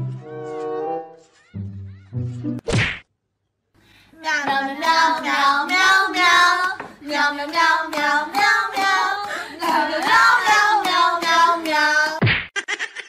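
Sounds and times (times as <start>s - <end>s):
child singing: 4.2s - 12.2s.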